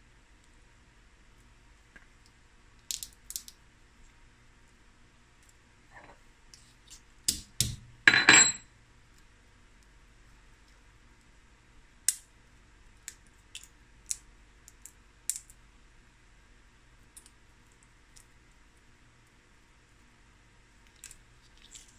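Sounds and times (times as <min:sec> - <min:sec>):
crab shells cracking: 0:02.8 - 0:03.6.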